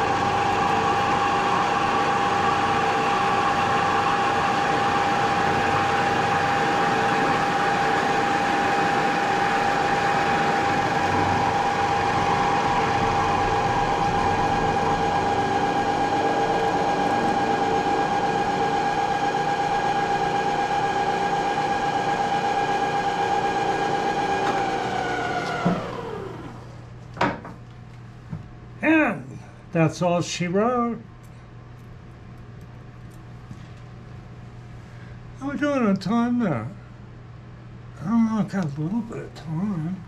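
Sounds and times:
spindle whine: 0.0 - 26.9.

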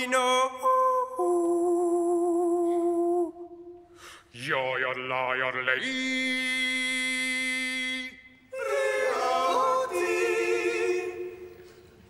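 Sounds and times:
male choir singing a cappella: 5.6 - 11.7.

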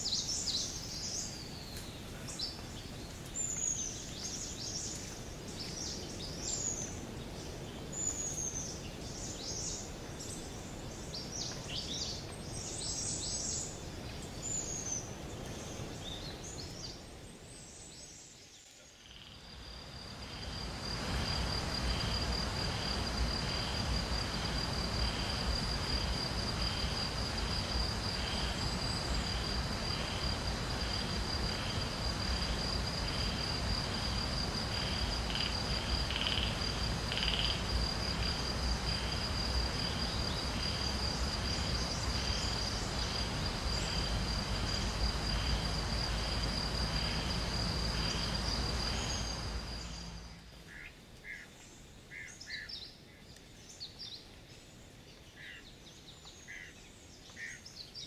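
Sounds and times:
background hiss: 0.0 - 58.0
insect chirping: 0.0 - 58.0
insect trilling: 19.0 - 50.9.

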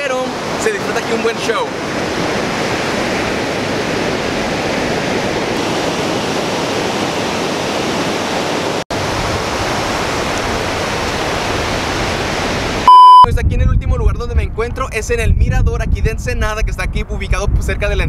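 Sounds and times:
ocean surf breaking on beach: 0.0 - 13.2.

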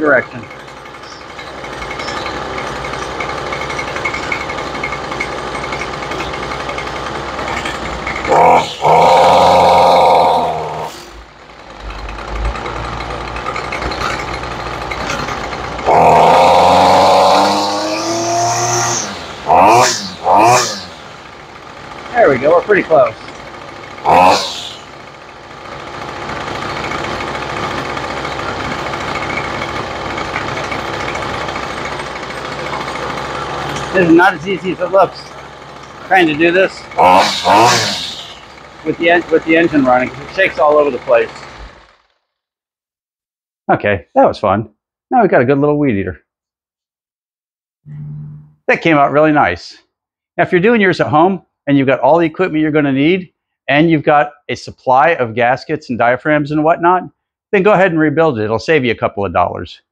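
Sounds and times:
two-stroke engine running: 0.0 - 42.5.

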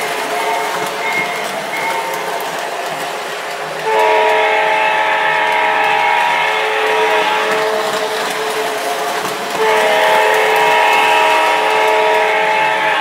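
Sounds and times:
model train rolling rumble: 0.0 - 13.0
diesel horn blast: 3.8 - 8.5, 9.6 - 13.0.

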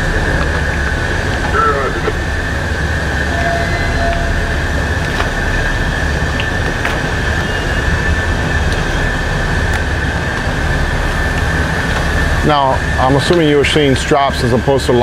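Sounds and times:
high machinery whine: 0.0 - 15.0
ship machinery rumble: 0.0 - 15.0.

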